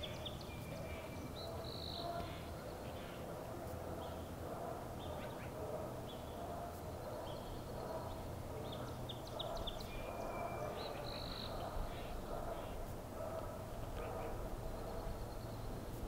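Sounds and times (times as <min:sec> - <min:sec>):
low background noise: 0:00.0 - 0:16.0
birds chirping and whistling: 0:08.7 - 0:12.1.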